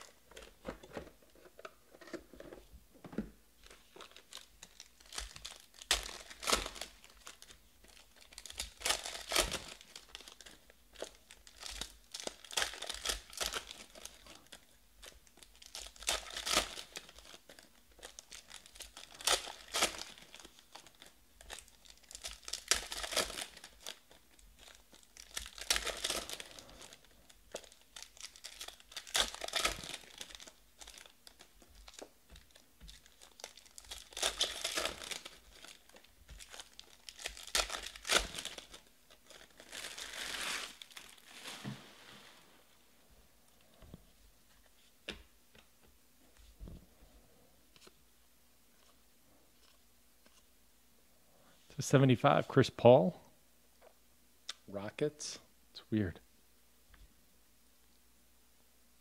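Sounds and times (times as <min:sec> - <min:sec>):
foil wrappers crinkling and tearing: 0:03.6 - 0:42.5.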